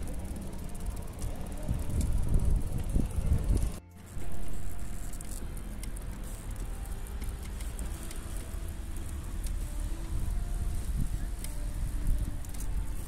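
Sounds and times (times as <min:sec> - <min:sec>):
small wheels rolling on asphalt: 0:00.0 - 0:13.0.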